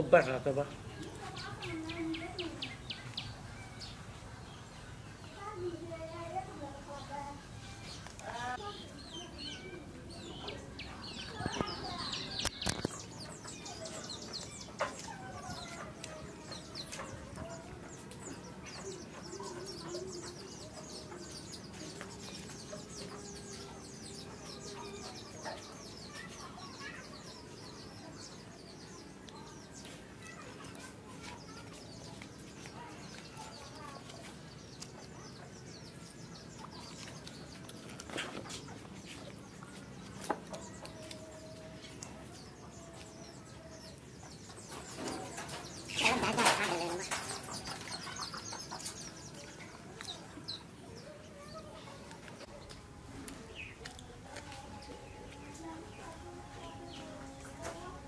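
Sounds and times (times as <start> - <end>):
chickens clucking: 0.0 - 58.0.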